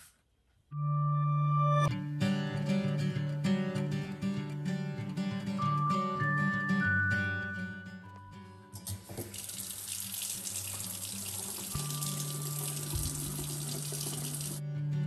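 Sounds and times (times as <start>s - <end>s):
quiet background music: 0.7s - 15.0s
faucet running into metal sink: 8.8s - 14.6s.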